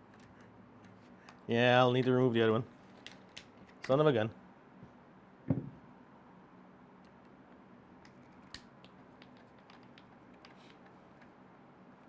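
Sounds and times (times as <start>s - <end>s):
short knock: 5.5s - 5.8s.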